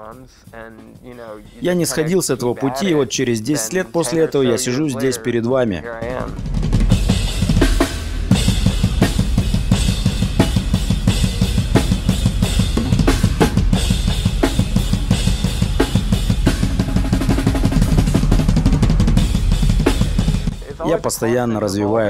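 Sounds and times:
rapid bass drum strokes: 0:05.8 - 0:21.3
cymbals crashing: 0:06.9 - 0:20.7.

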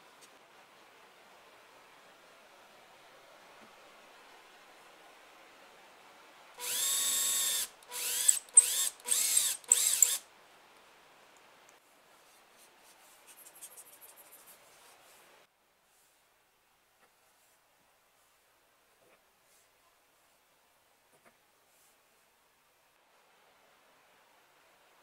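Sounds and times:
electric drill boring into plywood: 0:06.6 - 0:10.2.

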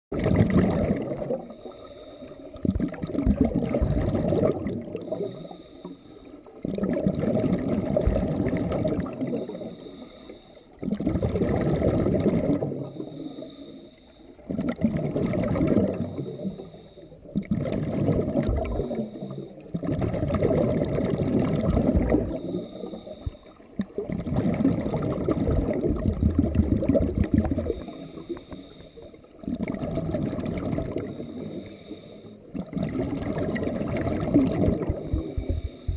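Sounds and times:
exhale bubbling underwater: 0:00.1 - 0:35.9
regulator inhale hiss: 0:01.4 - 0:02.6, 0:05.1 - 0:06.6, 0:09.4 - 0:10.8, 0:12.7 - 0:14.5, 0:16.1 - 0:17.3, 0:18.7 - 0:19.6, 0:22.4 - 0:23.7, 0:27.7 - 0:29.4, 0:31.0 - 0:32.5, 0:34.8 - 0:35.9.

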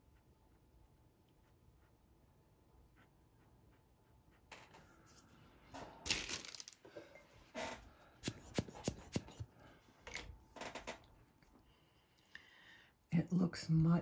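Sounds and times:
pastel scratching on paper: 0:00.0 - 0:04.5.

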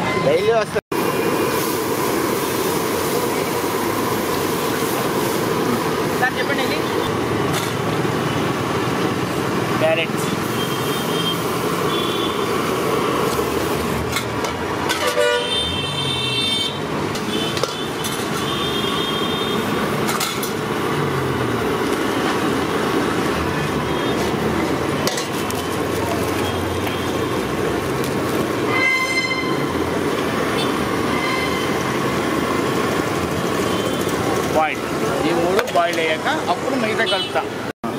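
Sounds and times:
roadside traffic noise: 0:00.0 - 0:37.9
vehicle horns honking: 0:10.4 - 0:12.5, 0:14.9 - 0:19.8, 0:28.6 - 0:29.9, 0:30.5 - 0:32.0, 0:33.5 - 0:34.2, 0:36.9 - 0:37.6.

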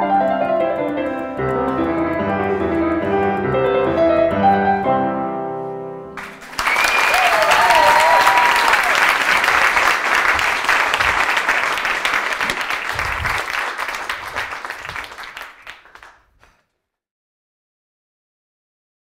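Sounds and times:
audience applauding: 0:06.2 - 0:16.6.

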